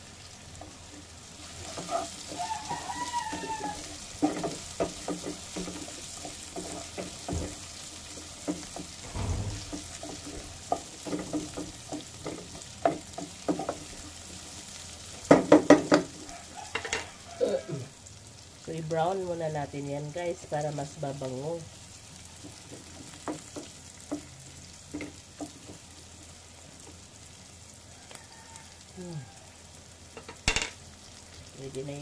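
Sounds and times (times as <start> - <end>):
aromatics sizzling in hot oil: 0.0 - 32.0
wooden spatula scraping a pot: 1.4 - 3.4.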